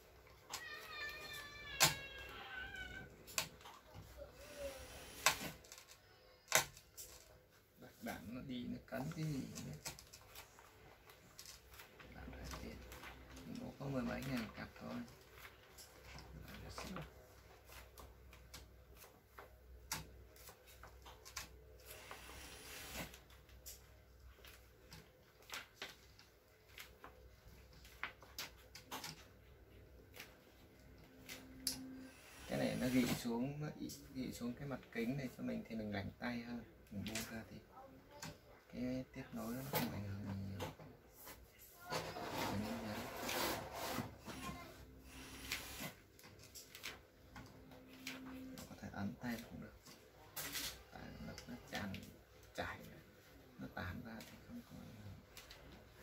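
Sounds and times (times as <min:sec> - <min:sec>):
cat meowing: 0:00.5 - 0:03.1.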